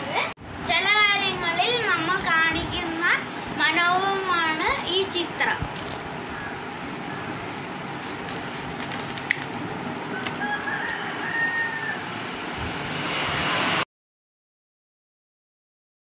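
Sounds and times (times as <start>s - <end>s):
steady background noise: 0.0s - 13.8s
rooster crowing: 10.1s - 12.4s.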